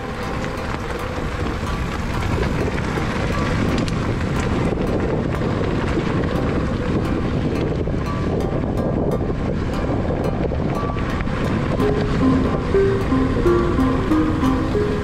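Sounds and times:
stones and bike rattling: 0.0 - 11.8
bike tyres rolling on gravel: 0.0 - 15.0
wind buffeting microphone: 0.0 - 15.0.

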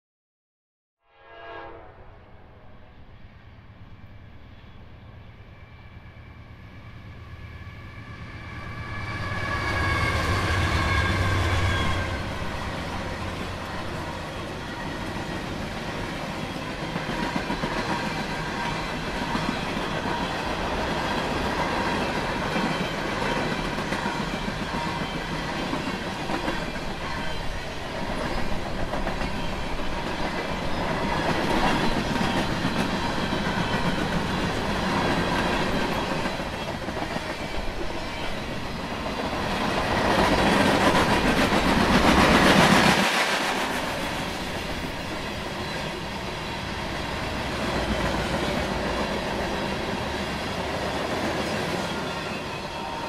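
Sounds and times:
train horn: 1.0 - 3.2, 7.8 - 12.7, 52.4 - 53.0.

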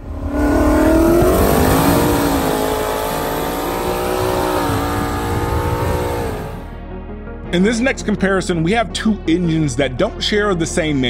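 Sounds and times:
car engine accelerating: 0.0 - 6.7.

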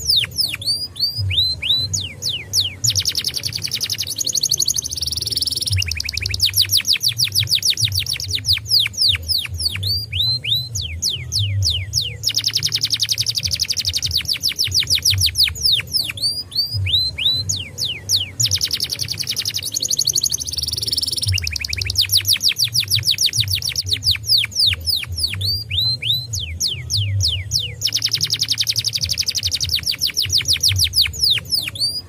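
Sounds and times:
canary singing trills: 0.0 - 32.0.

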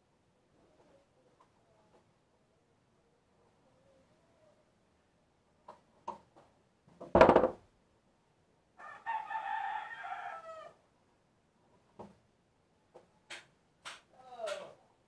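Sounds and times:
loud knock: 7.2 - 7.6
rooster crowing: 8.8 - 10.8.

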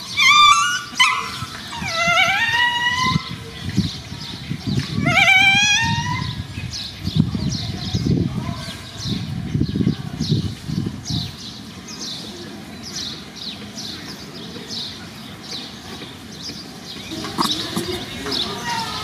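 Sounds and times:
bird chirping: 12.9 - 19.0
low animal sound with click: 17.1 - 18.4.

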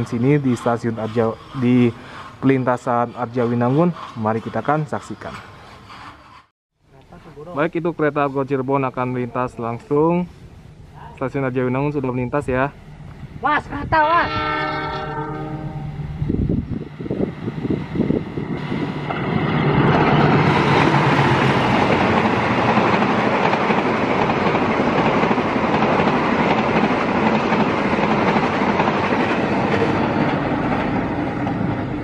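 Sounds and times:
train wheels rumbling on rails: 0.0 - 6.5, 16.0 - 32.0
diesel locomotive passing: 0.0 - 32.0.

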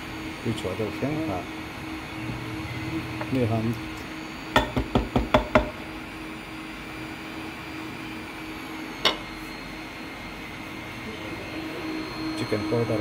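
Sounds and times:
mechanical hum: 0.0 - 13.0
sharp knocks: 4.6 - 5.8.

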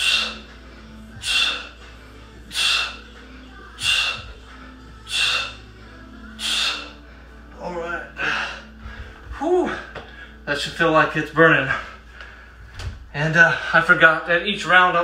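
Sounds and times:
man breathing hard: 0.0 - 10.4, 11.6 - 12.8.

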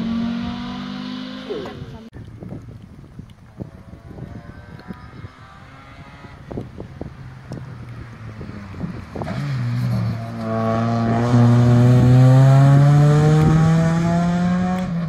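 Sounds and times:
rally car engine accelerating: 8.2 - 15.0.

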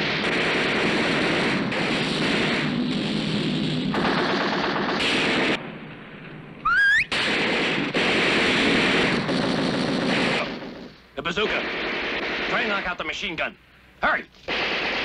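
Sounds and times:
automatic gunfire: 0.0 - 5.6, 7.1 - 10.8, 11.5 - 12.9, 14.5 - 15.0.

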